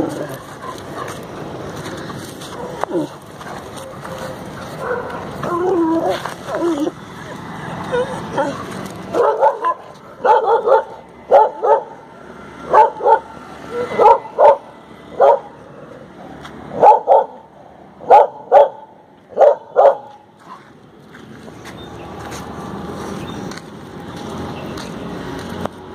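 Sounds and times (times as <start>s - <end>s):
dog barking: 2.5s - 5.3s, 8.3s - 12.0s, 12.7s - 15.6s, 16.7s - 17.4s, 18.0s - 20.2s.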